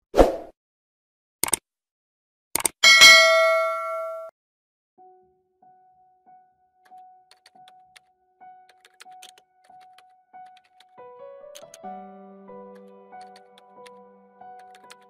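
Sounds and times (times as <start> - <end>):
bright bell ding: 2.8 - 4.3.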